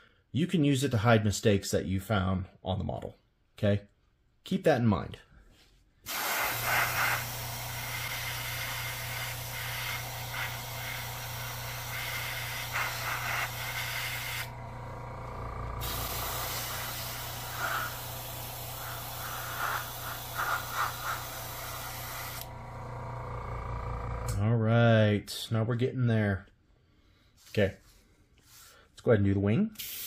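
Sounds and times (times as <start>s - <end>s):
airbrush spraying paint: 6.1s - 14.5s, 15.8s - 22.5s, 29.8s - 30.0s
low steady hum: 13.0s - 20.2s.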